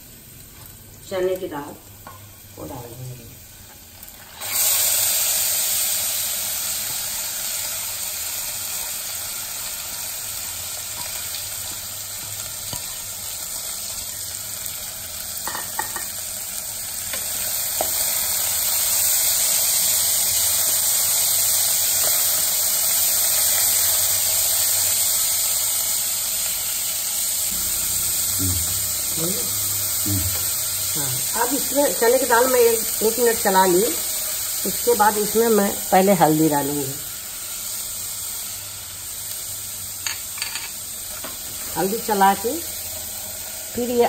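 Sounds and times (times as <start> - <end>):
lentils sizzling in hot oil: 0.0 - 44.0.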